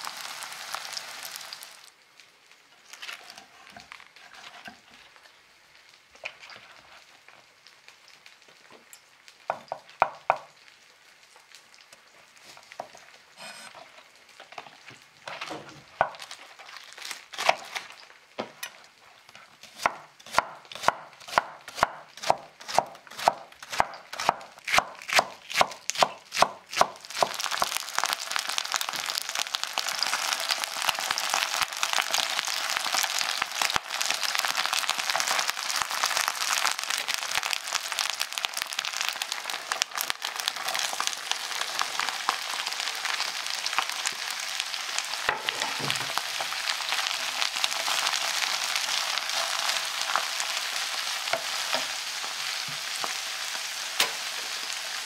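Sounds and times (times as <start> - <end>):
food sizzling in a pan: 0.0 - 55.0
knife chopping on wooden board: 19.7 - 27.4.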